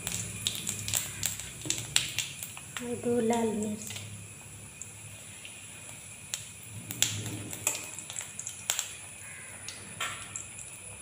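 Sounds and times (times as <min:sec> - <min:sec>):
spices sizzling in hot oil: 0:00.0 - 0:11.0.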